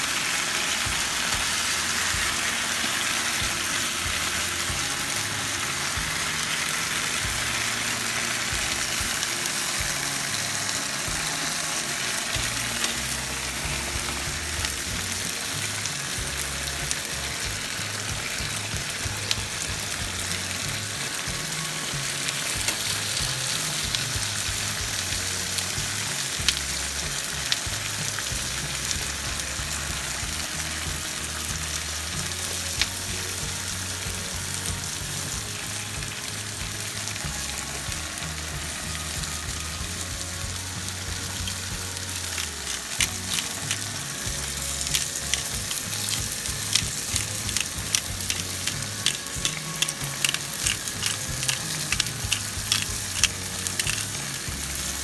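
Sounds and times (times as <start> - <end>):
meat sizzling in a frying pan: 0.0 - 55.0
metal tongs clicking: 44.8 - 54.2.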